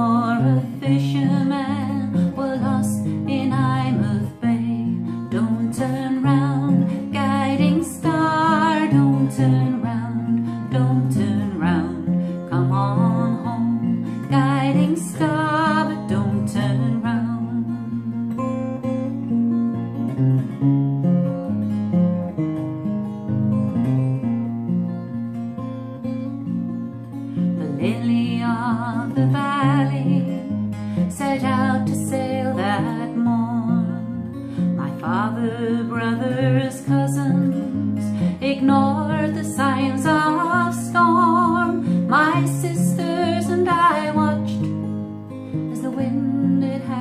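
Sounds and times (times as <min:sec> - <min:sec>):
woman singing with vibrato: 0:00.0 - 0:18.1, 0:27.6 - 0:44.7, 0:45.7 - 0:47.0
strummed acoustic guitar: 0:00.0 - 0:47.0.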